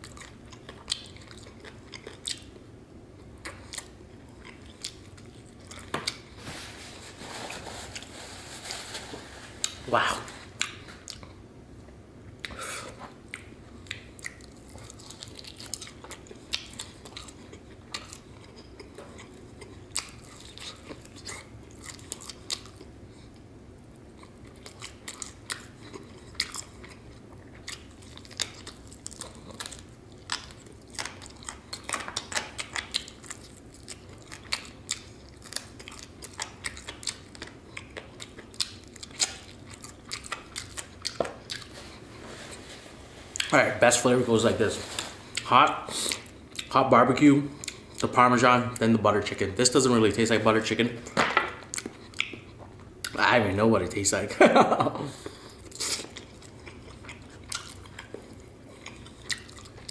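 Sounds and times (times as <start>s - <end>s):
person chewing chicken wings: 0.0s - 2.6s, 3.2s - 6.4s, 12.4s - 42.2s, 44.9s - 46.8s, 47.5s - 48.1s, 51.0s - 53.2s, 54.6s - 59.9s.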